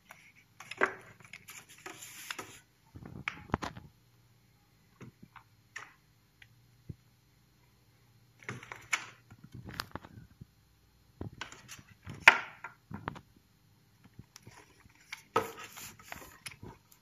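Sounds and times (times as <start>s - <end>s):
rustling handling noise: 14.0s - 17.0s.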